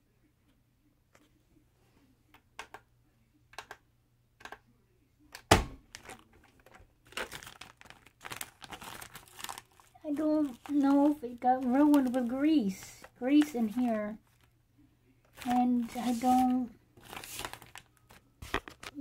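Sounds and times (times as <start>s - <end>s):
plastic bag crinkling: 5.9s - 14.5s, 15.3s - 19.0s.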